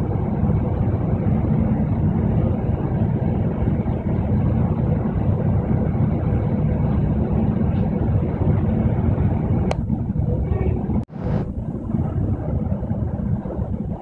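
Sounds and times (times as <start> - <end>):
bus engine and road rumble: 0.0 - 14.0.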